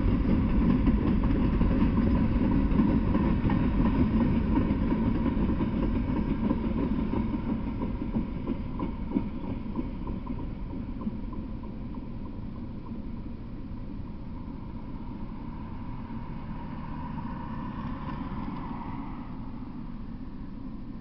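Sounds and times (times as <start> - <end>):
steady low rumble: 0.0 - 21.0
pickup truck driving past: 15.0 - 19.8.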